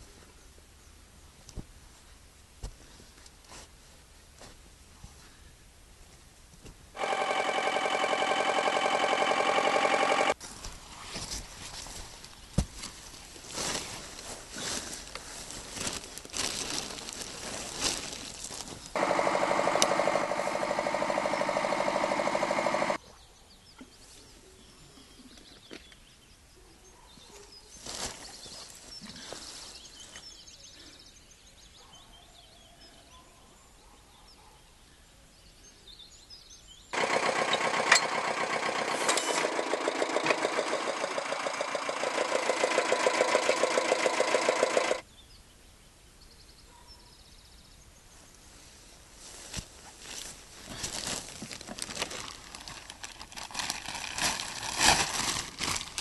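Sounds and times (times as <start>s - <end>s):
small tractor engine running: 7.0s - 10.4s, 19.0s - 23.0s, 37.0s - 45.0s.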